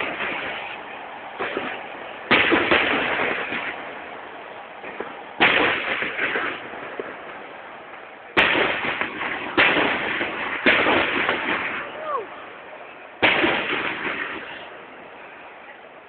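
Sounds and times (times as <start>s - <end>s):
loud firework bangs: 0.0s - 12.6s, 13.2s - 15.5s
small firework pops: 7.9s - 11.9s.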